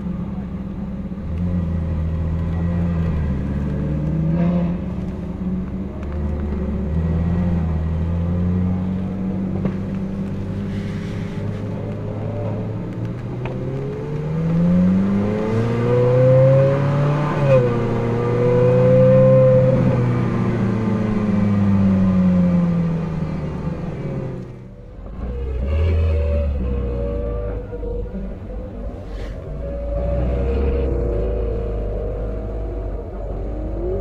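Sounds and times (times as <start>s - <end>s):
car engine revving: 0.0s - 34.0s.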